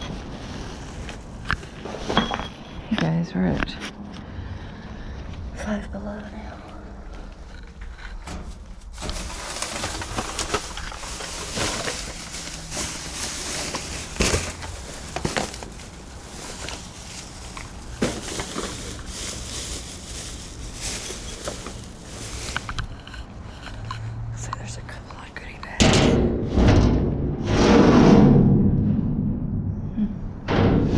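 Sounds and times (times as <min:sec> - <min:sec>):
plastic bags rustling: 0:00.0 - 0:02.7, 0:08.2 - 0:23.8.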